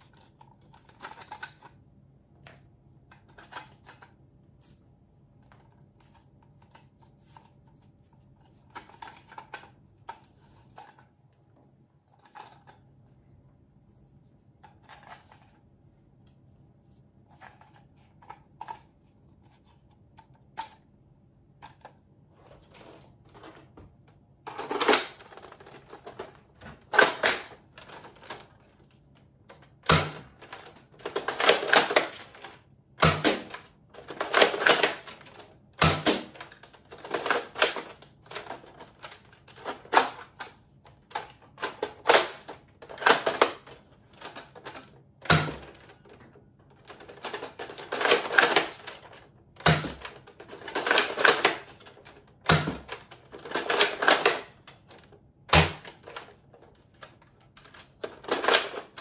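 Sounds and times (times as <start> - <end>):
toy blaster mechanism clacking: 29.8 - 40.4, 41.1 - 45.9, 47.0 - 51.9, 52.5 - 56.3, 58.0 - 59.0.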